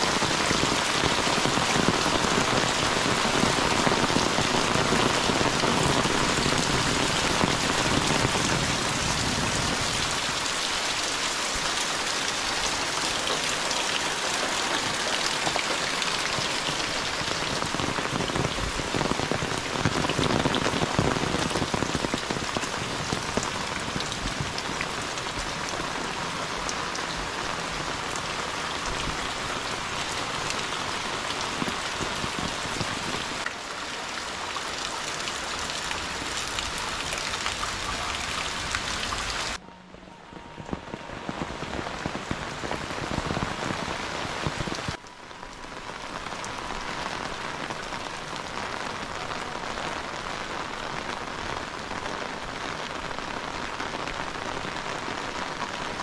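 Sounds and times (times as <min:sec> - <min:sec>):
heavy rain on roofs: 0:00.0 - 0:56.0.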